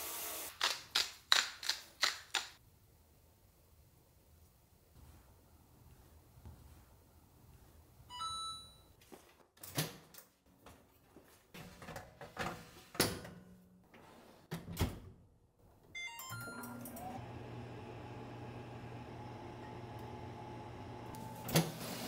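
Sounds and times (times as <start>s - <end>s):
oven running hum: 16.6s - 22.0s.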